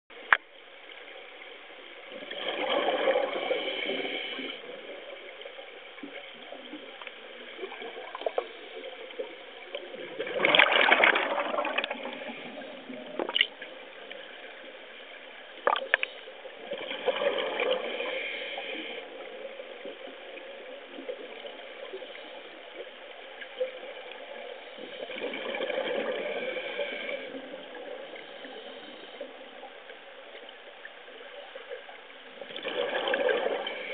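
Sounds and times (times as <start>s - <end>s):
regulator exhaust bubbles underwater: 6.1s - 13.6s, 32.4s - 33.9s.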